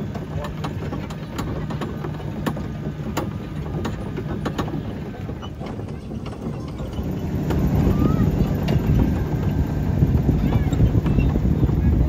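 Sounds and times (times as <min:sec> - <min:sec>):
sharp clacks and knocks: 0:00.0 - 0:07.8
kiddy train engine running: 0:00.0 - 0:12.0.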